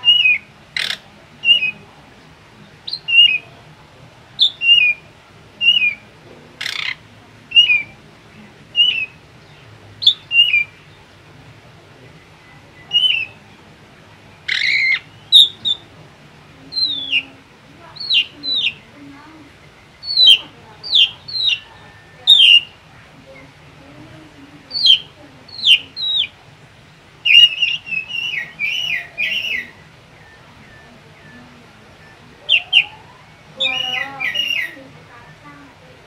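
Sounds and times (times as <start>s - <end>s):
bird whistled phrase: 0.0s - 1.8s, 6.7s - 7.9s, 12.8s - 13.4s, 20.0s - 22.8s, 27.2s - 35.4s
harsh rasping bird call: 0.0s - 1.8s, 4.4s - 8.0s, 10.0s - 11.1s, 12.8s - 13.4s, 14.4s - 15.9s, 16.7s - 22.9s, 24.6s - 26.4s, 27.2s - 35.7s.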